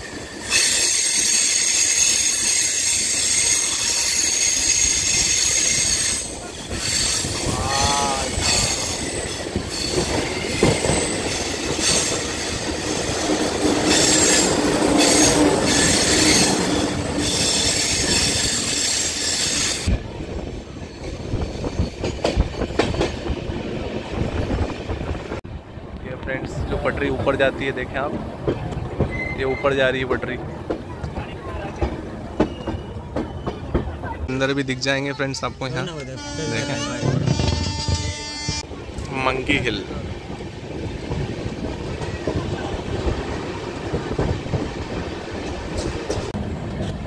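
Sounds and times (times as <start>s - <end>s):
train wheels squealing on rails: 0.0s - 23.1s, 29.0s - 30.1s, 31.5s - 34.0s
train rumble: 0.0s - 34.8s, 36.0s - 47.0s
rail joint clicks: 27.8s - 34.0s, 40.3s - 47.0s.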